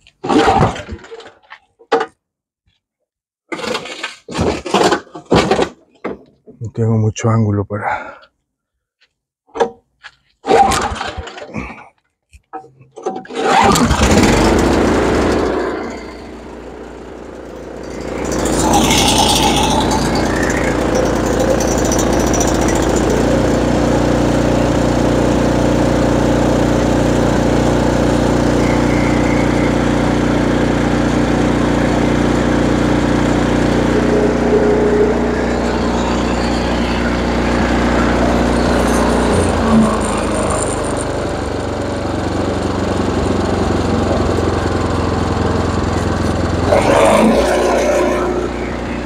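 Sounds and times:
snowblower engine running: 13.3 - 49.0.

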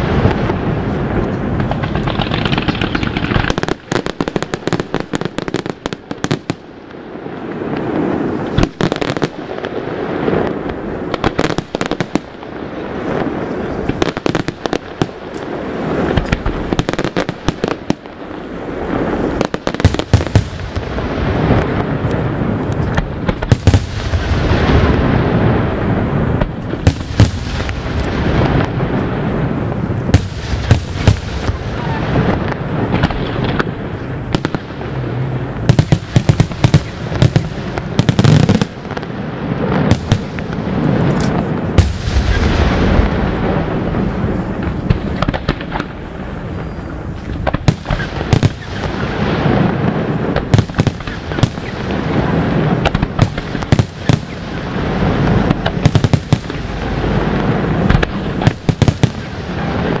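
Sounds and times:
continuous rumble: 0.0 - 7.1, 10.4 - 60.0.

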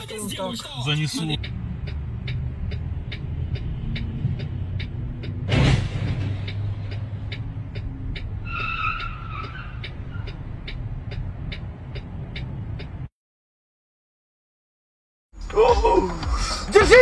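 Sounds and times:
even ticking: 1.4 - 13.1
tyres squealing: 8.4 - 10.4.

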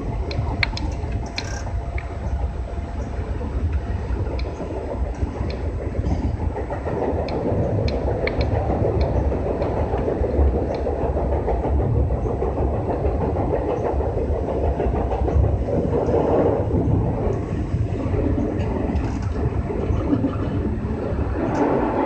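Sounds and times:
train wheels rumbling: 0.0 - 22.0
faint ticks: 0.3 - 2.1.

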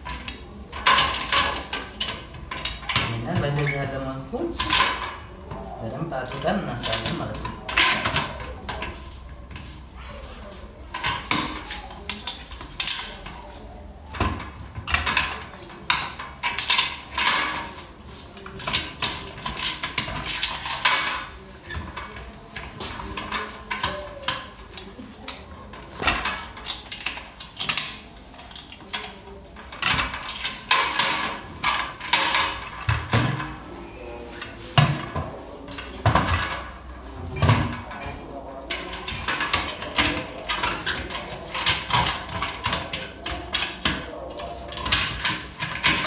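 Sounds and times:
metallic clicking and clanking: 0.0 - 3.8, 14.1 - 33.5, 34.8 - 46.0.

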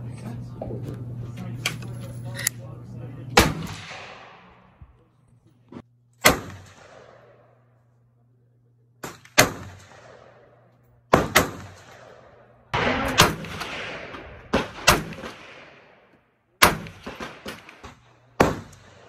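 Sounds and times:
rifle gunshots with echo: 3.4 - 5.0, 6.2 - 7.7, 9.0 - 19.0.

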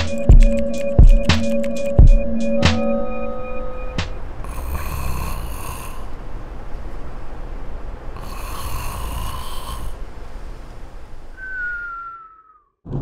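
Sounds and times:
man snoring: 4.4 - 6.1, 8.2 - 10.0.

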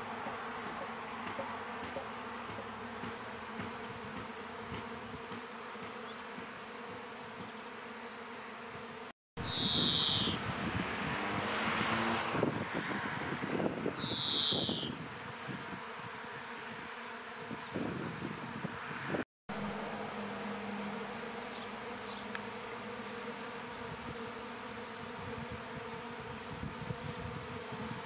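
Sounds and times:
swarm of bees buzzing: 0.0 - 28.0
high falling whistle: 9.4 - 10.4.

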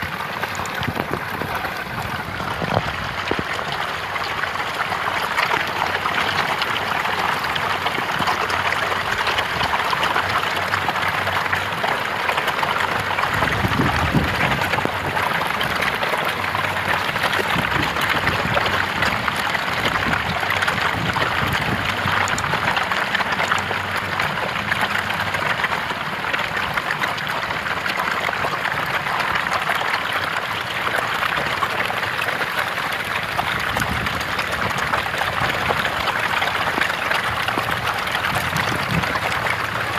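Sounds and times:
fish thrashing and splashing water: 0.0 - 39.9.

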